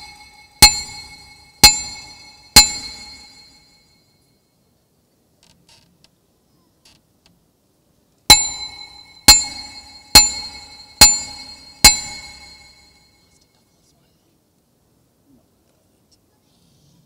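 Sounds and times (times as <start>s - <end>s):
bell ringing: 0.0s - 3.7s, 8.3s - 13.1s.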